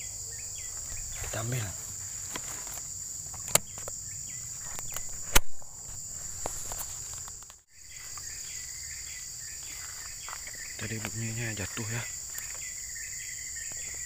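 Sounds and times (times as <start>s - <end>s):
insects droning: 0.0s - 14.0s
sharp click: 3.3s - 4.0s, 4.7s - 5.7s.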